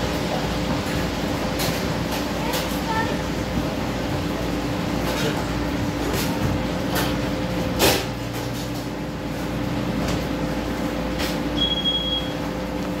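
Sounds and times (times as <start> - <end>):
machinery hum: 0.0 - 13.0
brief high beep: 11.6 - 12.4.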